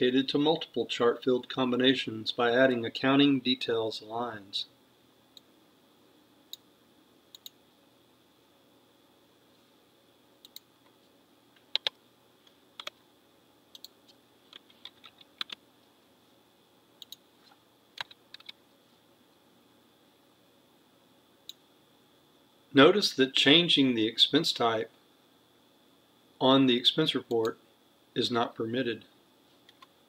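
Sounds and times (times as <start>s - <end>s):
mouse clicks: 7.3s - 7.6s
keyboard keystrokes: 11.7s - 12.0s, 12.8s - 13.0s, 14.5s - 15.6s, 18.0s - 18.6s.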